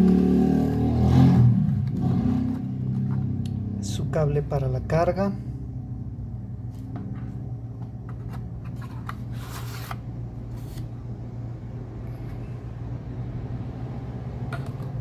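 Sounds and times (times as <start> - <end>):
steady low hum: 0.0 - 15.0
cardboard scraping rustle: 8.2 - 10.9.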